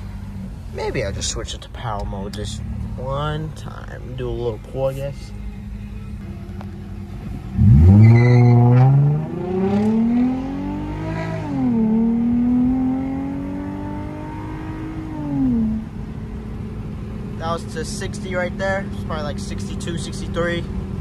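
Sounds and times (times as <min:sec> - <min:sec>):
car engine accelerating: 0:05.6 - 0:21.0.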